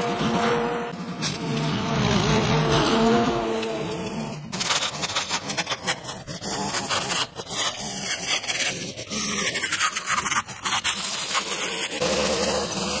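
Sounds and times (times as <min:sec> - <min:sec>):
string trimmer cutting grass: 0:00.0 - 0:06.0, 0:11.9 - 0:13.0.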